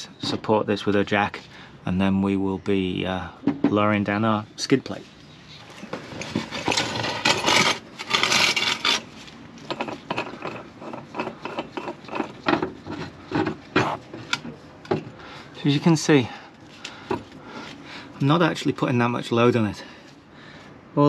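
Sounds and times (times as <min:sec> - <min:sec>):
metal scraping: 0:05.5 - 0:14.7.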